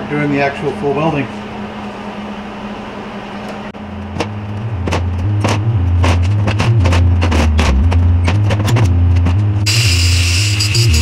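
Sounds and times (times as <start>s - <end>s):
background music with deep bass: 4.0s - 11.0s.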